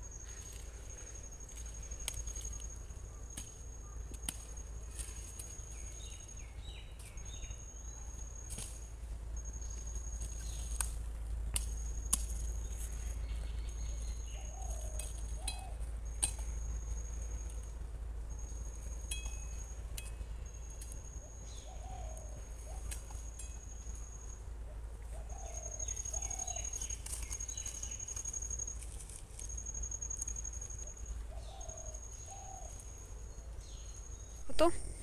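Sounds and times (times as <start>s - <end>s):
steady low hum: 0.0s - 35.0s
sickle chopping stems and soil: 0.2s - 6.2s, 8.4s - 8.9s, 10.1s - 16.7s, 22.8s - 23.7s, 26.6s - 29.5s.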